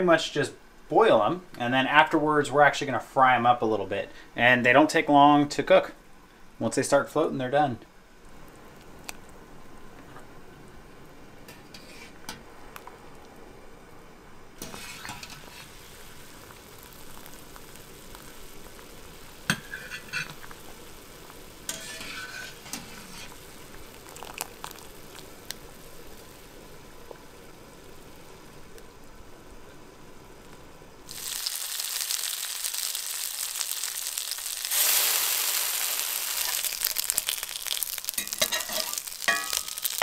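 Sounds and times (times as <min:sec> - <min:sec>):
water boiling in a pot: 0:08.0 - 0:40.0
metal spoon clinking on pot: 0:38.2 - 0:40.0.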